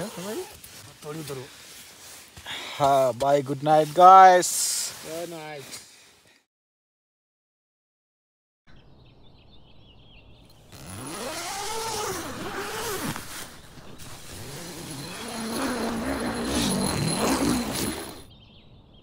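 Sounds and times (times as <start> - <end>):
motorcycle engine revving: 10.7 - 18.3.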